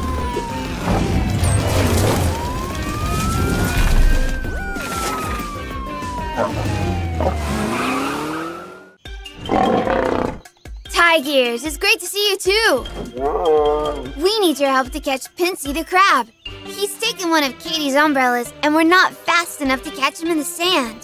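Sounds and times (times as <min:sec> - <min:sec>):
cartoon siren wailing: 0:00.0 - 0:09.0
background music: 0:00.0 - 0:21.0.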